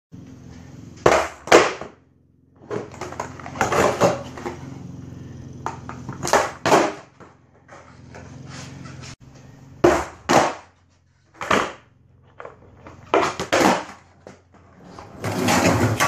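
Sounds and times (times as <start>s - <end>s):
skateboard wheels rumbling: 0.2s - 16.0s
skateboard knocking and clacking: 1.0s - 2.0s, 2.6s - 4.6s, 5.6s - 7.8s, 9.8s - 16.0s.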